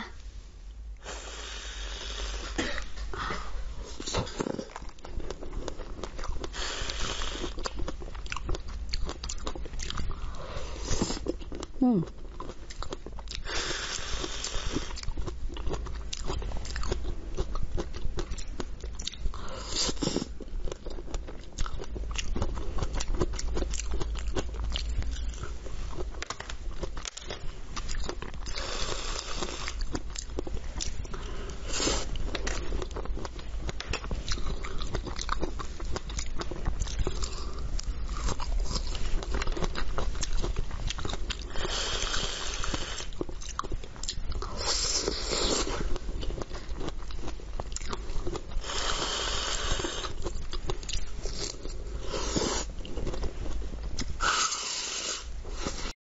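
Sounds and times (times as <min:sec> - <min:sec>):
wet biting and chewing: 0:31.8 - 0:55.9.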